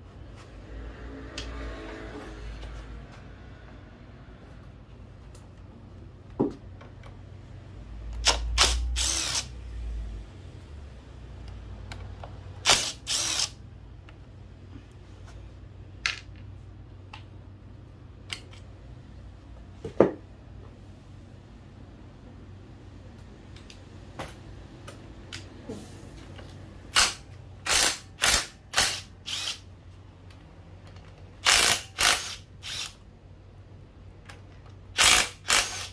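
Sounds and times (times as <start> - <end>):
hand-held power tool bursts: 8.2 - 9.5, 12.6 - 13.6, 26.9 - 29.6, 31.4 - 33.0, 35.0 - 35.9
tools and metal parts clicking: 30.8 - 33.0.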